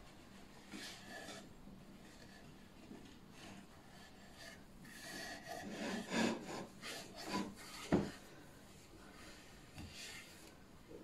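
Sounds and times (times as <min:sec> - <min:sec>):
wooden panels scraping: 0:04.9 - 0:08.4.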